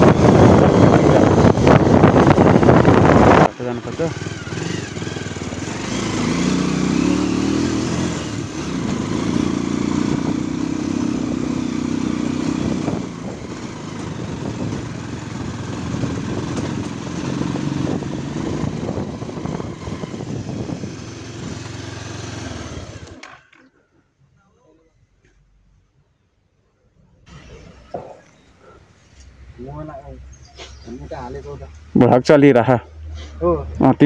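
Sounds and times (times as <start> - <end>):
motorcycle engine running: 0.0 - 23.7.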